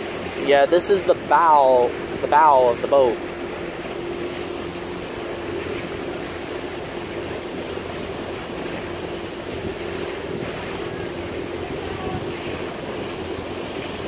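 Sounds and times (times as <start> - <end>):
boat engine drone: 0.0 - 14.0
water rushing along a hull: 0.0 - 14.0
wind buffeting microphone: 3.5 - 14.0.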